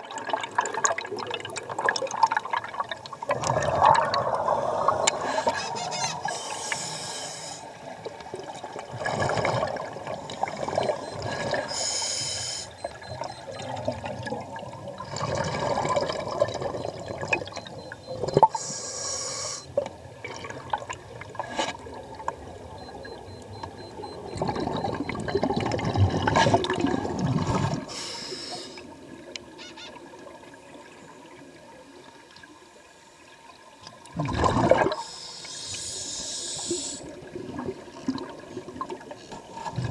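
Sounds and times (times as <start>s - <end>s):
scuba regulator hissing and bubbling: 3.5s - 7.8s, 9.0s - 13.7s, 18.3s - 19.8s, 24.4s - 28.9s, 34.7s - 37.2s.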